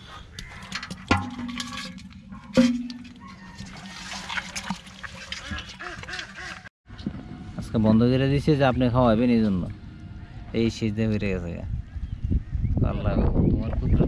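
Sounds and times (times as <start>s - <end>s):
fish thrashing in metal basin: 0.4s - 6.7s
hard knocks on ringing basin: 0.9s - 3.4s.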